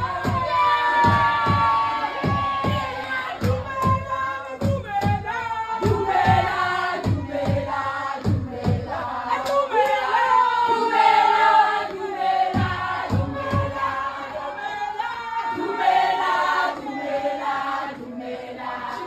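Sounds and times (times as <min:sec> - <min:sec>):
women singing in parts: 0:00.0 - 0:19.0.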